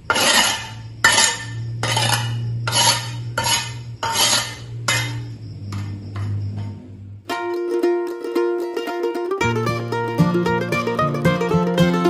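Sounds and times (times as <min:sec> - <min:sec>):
metal spatula scraping stone mortar: 0:00.0 - 0:05.3
steady low hum: 0:00.0 - 0:10.1.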